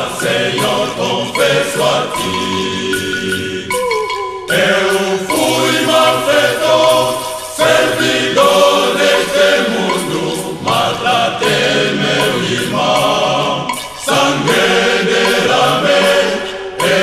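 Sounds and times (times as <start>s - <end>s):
male choir singing a hymn: 0.0s - 17.0s.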